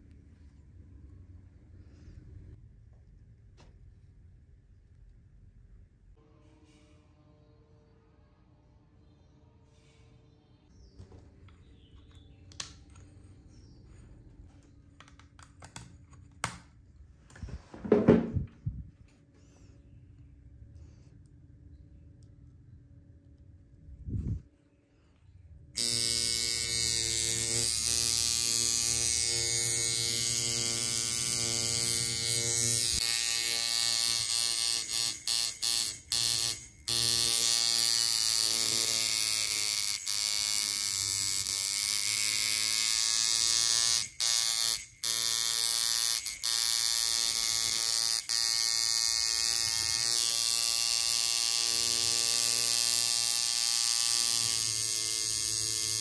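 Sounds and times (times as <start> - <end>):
tattoo machine buzzing: 25.8 - 56.0.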